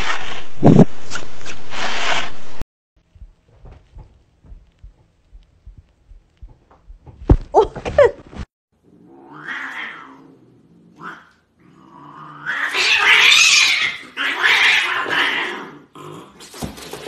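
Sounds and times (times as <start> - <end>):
cat yowling: 12.4 - 15.6.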